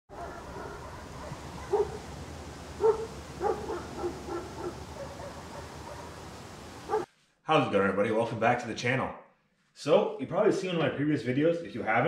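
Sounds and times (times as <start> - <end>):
dog barking and yipping: 0.1 - 2.1, 2.8 - 7.1.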